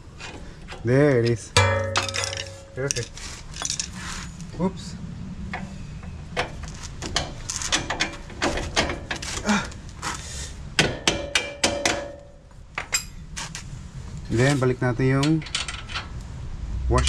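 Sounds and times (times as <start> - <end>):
metallic knocks and clinks: 1.6 - 4.0, 10.8 - 13.2, 15.2 - 16.2.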